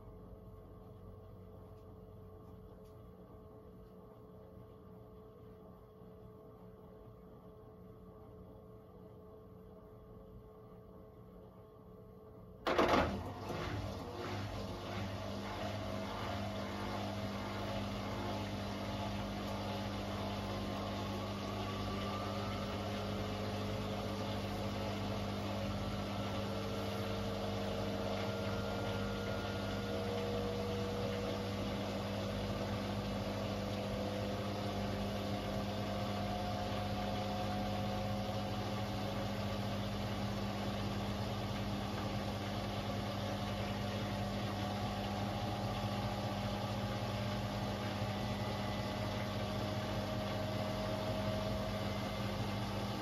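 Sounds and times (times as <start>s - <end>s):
washing machine spinning: 0.0s - 53.0s
motor whine rising in pitch: 13.2s - 53.0s.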